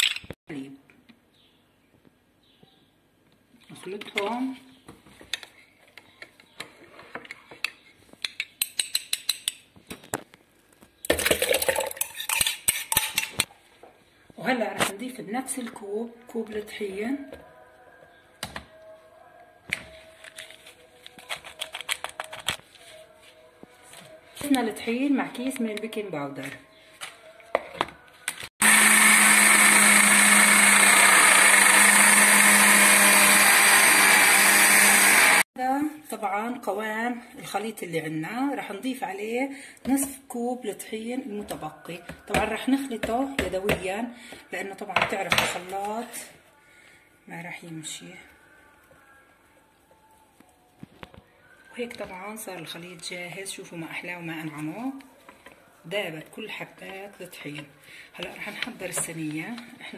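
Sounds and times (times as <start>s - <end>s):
electric hand mixer beating batter: 28.6s - 35.4s.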